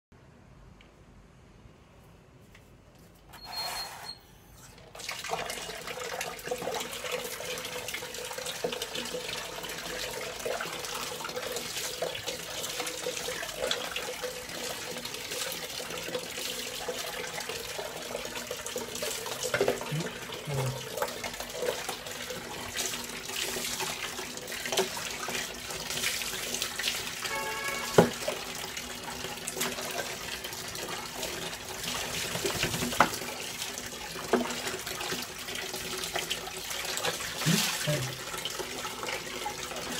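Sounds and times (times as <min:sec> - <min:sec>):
brief squeak: 0:03.3 - 0:04.8
water running from tap into bucket: 0:04.8 - 0:39.9
water poured splashing on tiles: 0:29.0 - 0:39.2.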